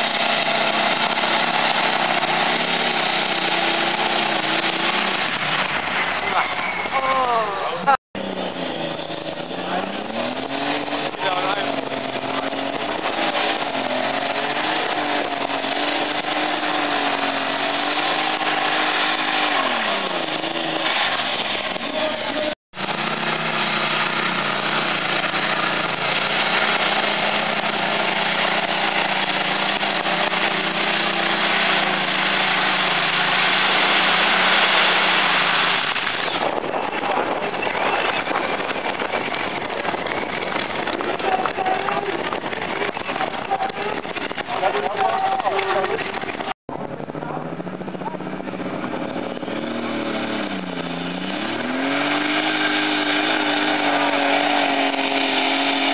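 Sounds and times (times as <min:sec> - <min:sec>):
pulling tractor engines running loud: 0:00.0 - 0:55.9.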